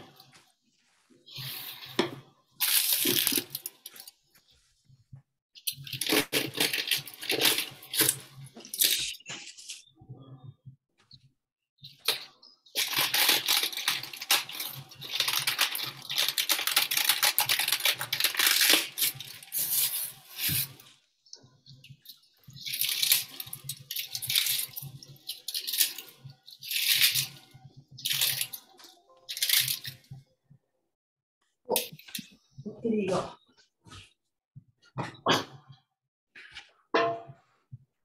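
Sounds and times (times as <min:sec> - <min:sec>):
cabbage leaves tearing: 0:05.9 - 0:09.8, 0:12.8 - 0:20.7.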